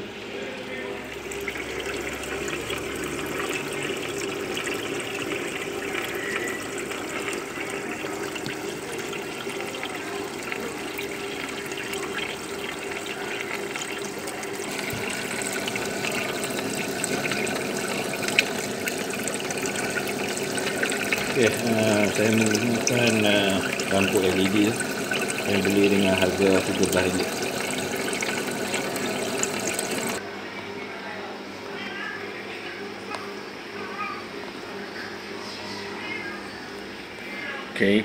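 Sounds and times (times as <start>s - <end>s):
water splashing and bubbling: 1.0s - 30.2s.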